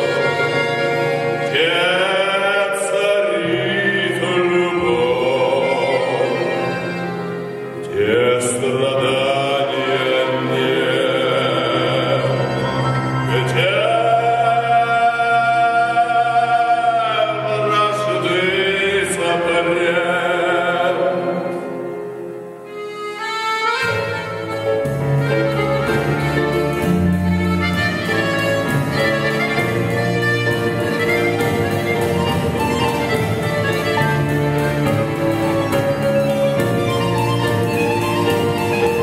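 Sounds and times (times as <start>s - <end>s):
man singing with vibrato: 0.0s - 22.4s
band accompaniment: 0.0s - 39.0s.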